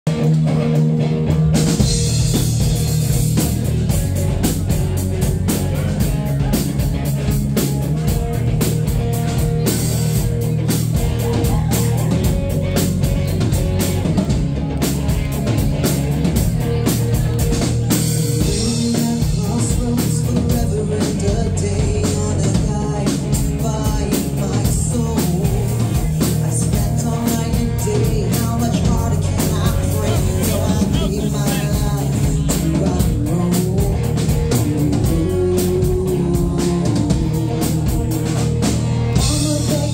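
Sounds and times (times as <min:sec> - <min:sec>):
live rock band playing: 0:00.1 - 0:39.9
woman singing lead: 0:18.3 - 0:39.9.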